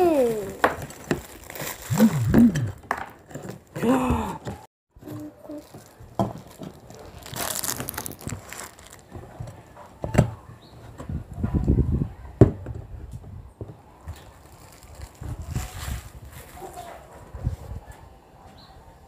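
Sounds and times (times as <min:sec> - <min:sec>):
plastic wrapping crinkling: 0:00.0 - 0:02.8, 0:05.0 - 0:09.6, 0:14.1 - 0:16.9.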